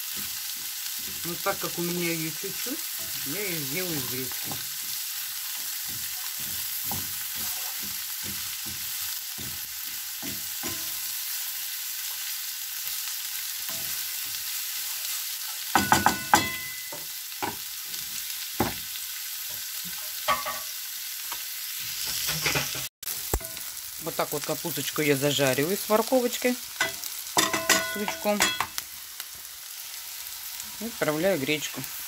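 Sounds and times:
vegetables sizzling in a frying pan: 0.0s - 32.0s
wooden spatula scraping a pan: 0.1s - 11.1s.

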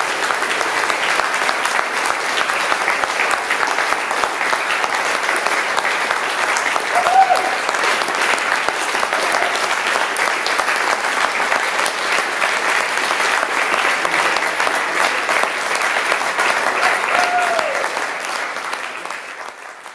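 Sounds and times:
audience applauding: 0.0s - 19.9s.

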